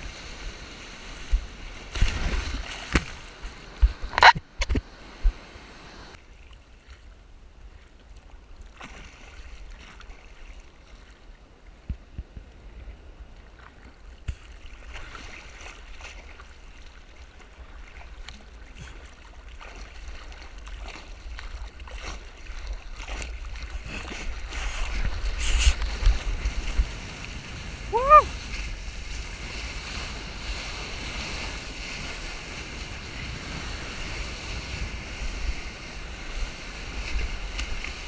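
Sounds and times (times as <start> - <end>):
water splashing around surfboard: 0.0 - 5.4, 8.6 - 11.3, 13.5 - 38.0
wind on microphone: 21.2 - 38.0.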